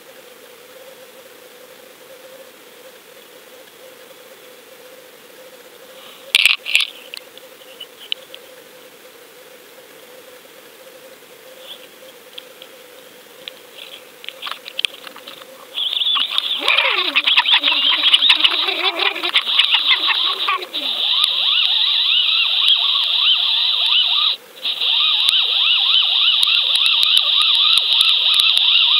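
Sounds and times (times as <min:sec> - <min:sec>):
faint underwater hum: 0:00.0 - 0:28.9
sharp clicks: 0:13.4 - 0:18.5, 0:22.6 - 0:22.8, 0:25.2 - 0:28.8.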